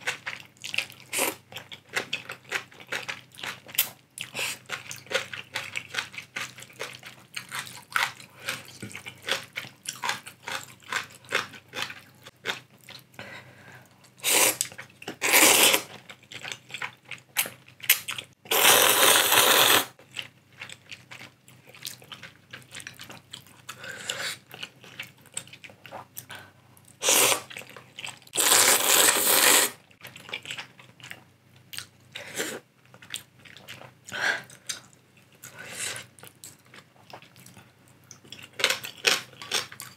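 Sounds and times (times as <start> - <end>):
noodle slurping: 28.4 - 29.8.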